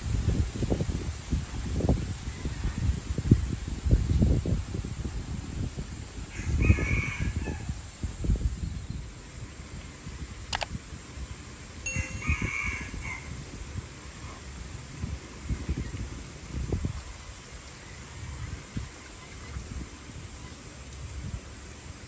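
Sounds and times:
wind gusting over microphone: 0.0 - 22.0
sharp click: 10.5 - 10.7.

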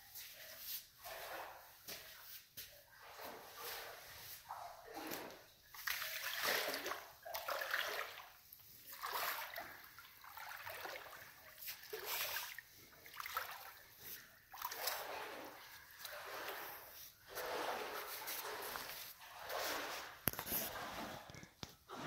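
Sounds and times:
legs wading through water: 2.9 - 21.3.

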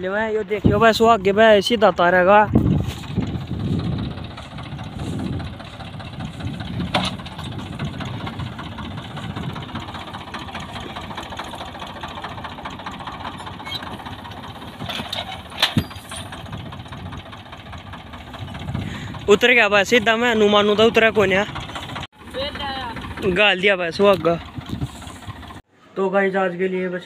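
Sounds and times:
diesel tractor engine running: 0.0 - 25.7
sharp knocks: 6.7 - 8.2.

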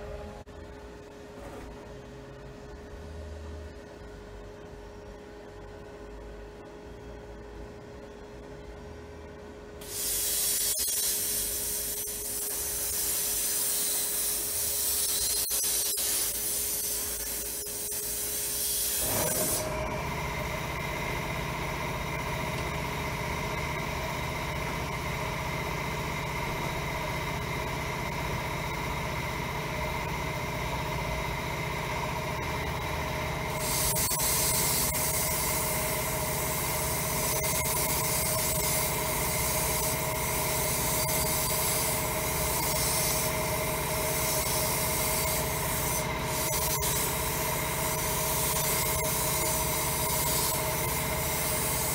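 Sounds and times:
steady machine hum: 0.0 - 51.9
sandblast gun hissing: 9.8 - 19.6, 33.6 - 35.8.

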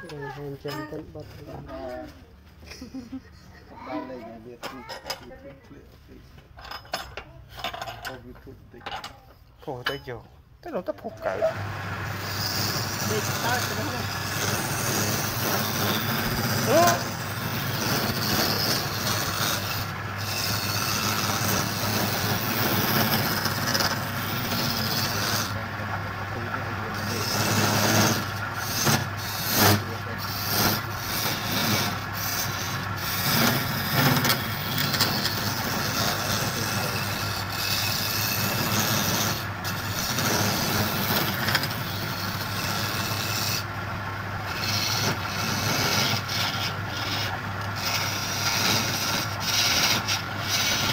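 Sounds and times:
scraper scraping spinning wood: 11.0 - 50.9
wood lathe humming: 11.0 - 50.9.

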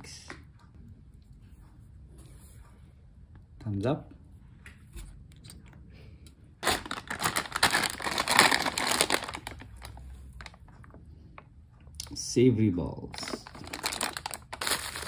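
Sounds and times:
snack packaging crinkling: 6.6 - 10.7, 13.1 - 15.0.

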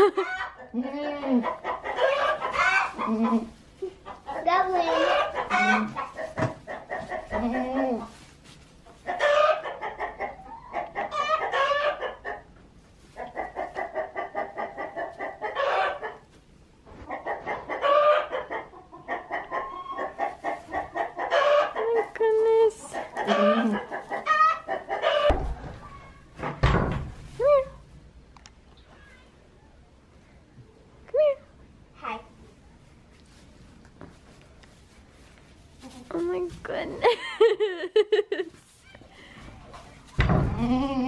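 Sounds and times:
chickens clucking: 0.0 - 8.2, 8.8 - 26.2
dull thumps: 25.3 - 27.4, 40.1 - 40.8.

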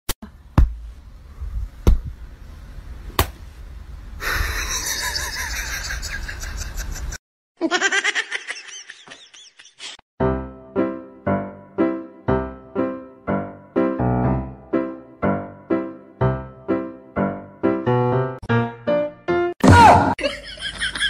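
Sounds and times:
people laughing: 4.3 - 10.0, 20.2 - 21.0
piano music: 10.2 - 19.6.

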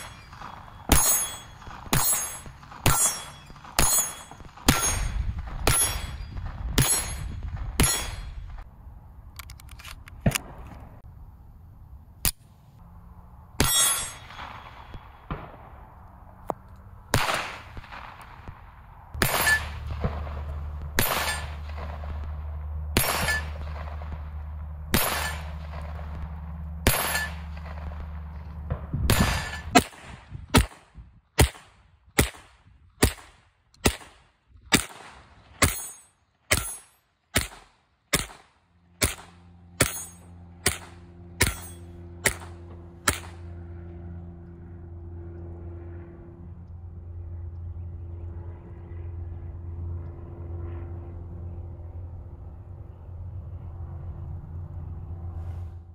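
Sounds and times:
pistol shots: 0.0 - 8.6, 17.1 - 18.6, 19.2 - 22.4, 23.0 - 24.2, 24.9 - 26.2, 26.8 - 28.0, 29.1 - 42.5, 43.1 - 43.4.

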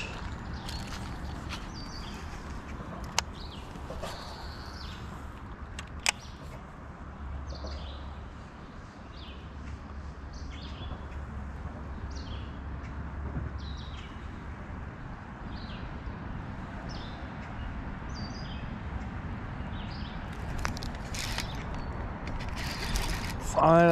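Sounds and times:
bird calling: 0.0 - 5.4
steady low rumble: 0.0 - 7.0.

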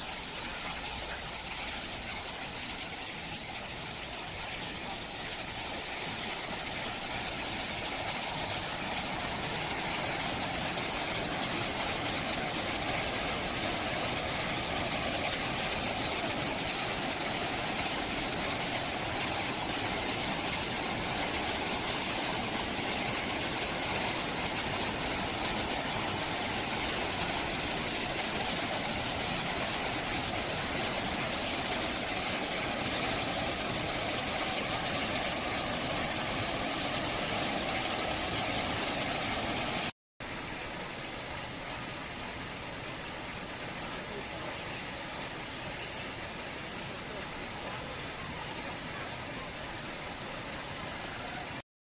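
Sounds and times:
waterfall rushing over rocks: 0.0 - 51.6.

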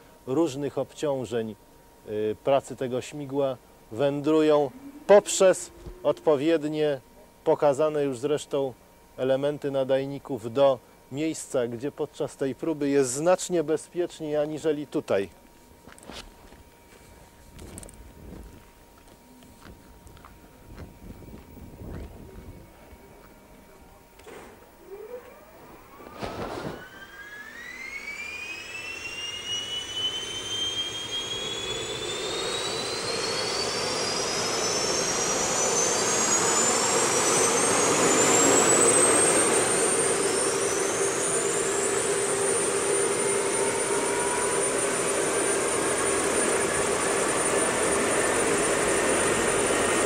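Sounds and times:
helicopter engine whine: 2.7 - 7.1, 15.9 - 50.0
low hum: 3.0 - 8.3, 15.5 - 50.0.

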